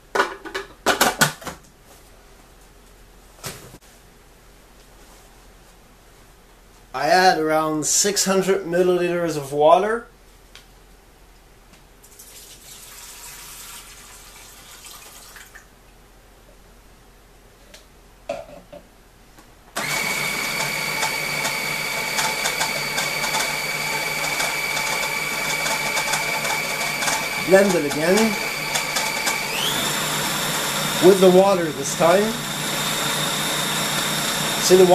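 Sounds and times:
water pouring into a bowl: 0:12.1 - 0:15.7
food processor motor whining: 0:19.8 - 0:34.9.

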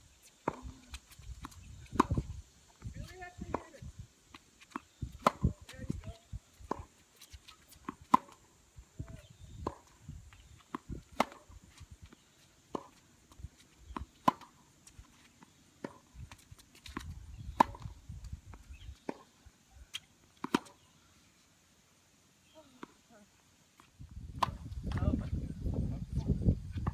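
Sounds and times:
tennis ball bouncing: 0:00.4 - 0:02.2, 0:03.0 - 0:03.8, 0:04.7 - 0:08.4, 0:09.6 - 0:10.0, 0:10.6 - 0:15.0, 0:15.8 - 0:18.0, 0:18.6 - 0:19.3, 0:19.9 - 0:20.8
tennis ball hit by racket: 0:01.4 - 0:02.2, 0:04.7 - 0:05.5, 0:07.8 - 0:08.4, 0:10.7 - 0:11.6, 0:13.9 - 0:14.6, 0:15.8 - 0:16.1, 0:16.8 - 0:17.9, 0:20.4 - 0:20.8, 0:24.4 - 0:25.0.

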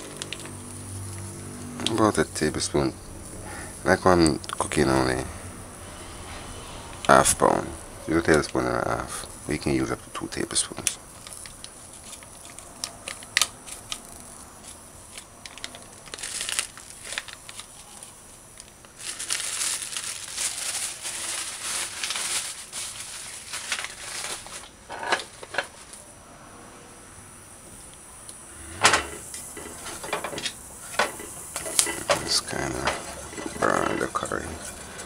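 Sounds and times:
plastic bag crinkling: 0:00.0 - 0:02.5, 0:10.3 - 0:26.0.

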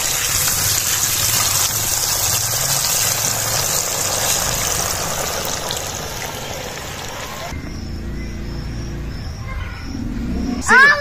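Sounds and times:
batter sizzling in hot oil: 0:00.0 - 0:07.5.

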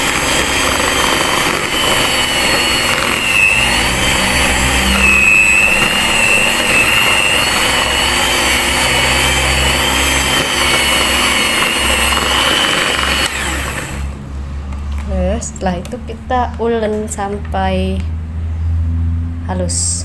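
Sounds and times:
beaters churning dough: 0:00.0 - 0:14.2
electric hand mixer motor whine: 0:00.0 - 0:14.3.

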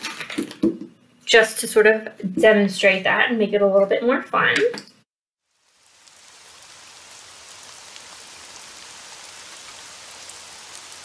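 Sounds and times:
steady hiss: 0:05.4 - 0:11.0.

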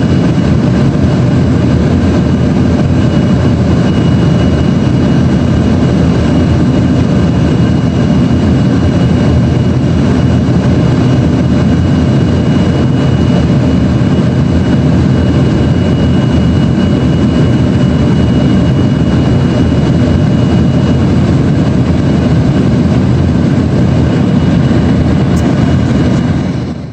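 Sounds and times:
airflow rushing in jet cabin: 0:00.0 - 0:26.9
jet engines humming: 0:00.0 - 0:26.9
faint high whine: 0:02.7 - 0:10.3.

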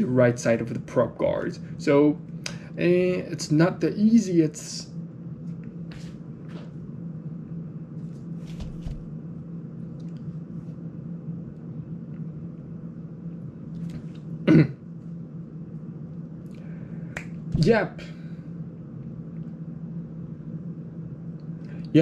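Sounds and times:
steady low hum: 0:00.0 - 0:22.0
person clearing throat: 0:14.4 - 0:14.8.

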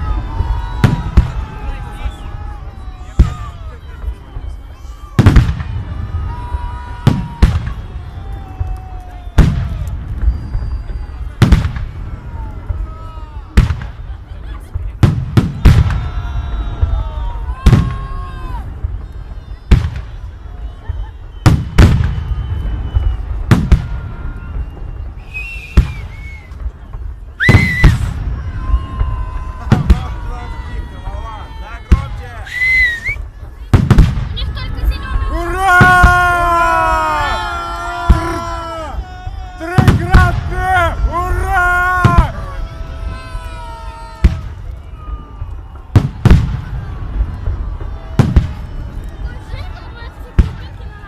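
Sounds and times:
rising whistle: 0:06.2 - 0:11.4, 0:19.0 - 0:29.4, 0:32.4 - 0:33.3.

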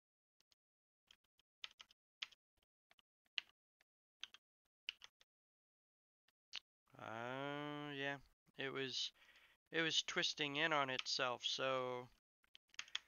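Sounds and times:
keyboard and mouse clicking: 0:01.2 - 0:03.5, 0:04.2 - 0:05.2, 0:12.4 - 0:13.0.

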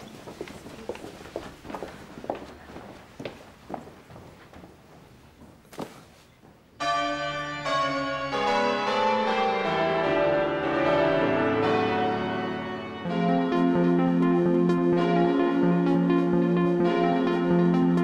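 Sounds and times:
faint footsteps: 0:00.0 - 0:06.8
bells ringing: 0:06.8 - 0:18.0.

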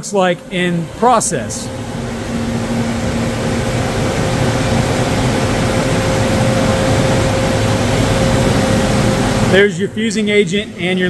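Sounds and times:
printer mechanical whir: 0:00.0 - 0:11.0
thin steady hum: 0:00.0 - 0:11.0.

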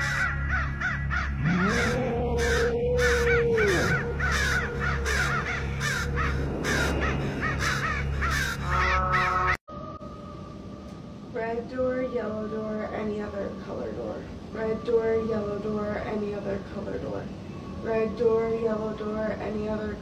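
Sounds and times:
crows cawing: 0:00.0 - 0:09.6.

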